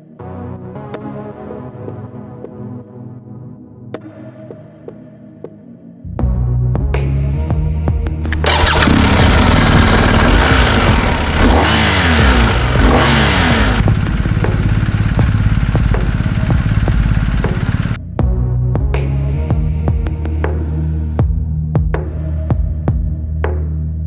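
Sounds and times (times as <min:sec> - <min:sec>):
motorcycle engine starting and revving: 0:08.2 - 0:18.0.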